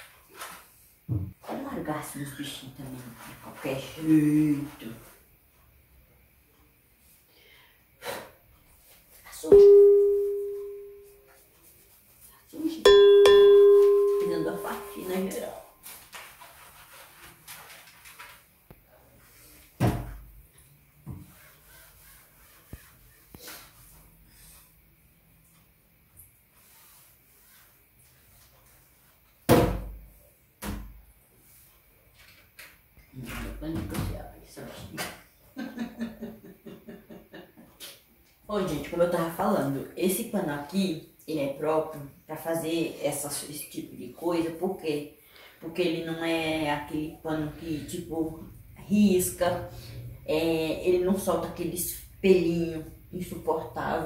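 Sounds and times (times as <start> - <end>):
bell-like chime: 9.5 - 11.2, 12.9 - 15.3.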